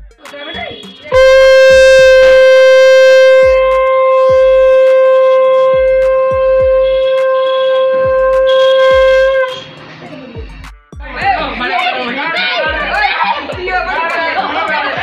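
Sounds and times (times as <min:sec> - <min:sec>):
conch shell blown: 0:01.1 - 0:09.7.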